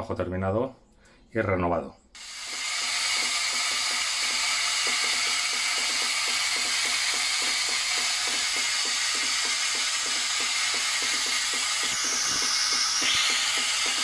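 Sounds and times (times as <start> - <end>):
soft rapid pulsing: 2.2 - 14.0
water hissing through injector: 8.9 - 14.0.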